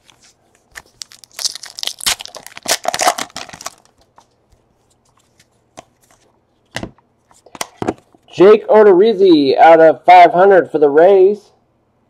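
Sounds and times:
packaging crinkling and tearing: 0:00.0 - 0:04.3.

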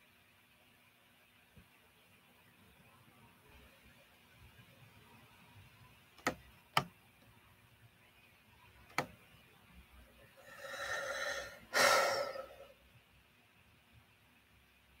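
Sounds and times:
noisy breaths close to microphone: 0:10.2 - 0:12.8.

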